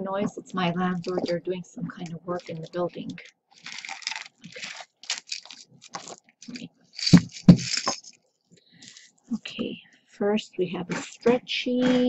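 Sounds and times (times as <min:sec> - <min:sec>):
jewelry rustling and clinking: 0:02.3 - 0:08.2, 0:08.8 - 0:09.2.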